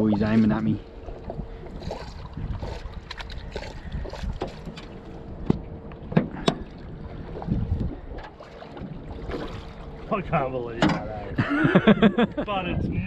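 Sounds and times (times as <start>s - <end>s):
faint steady hum: 0.0s - 13.0s
wind: 0.0s - 13.0s.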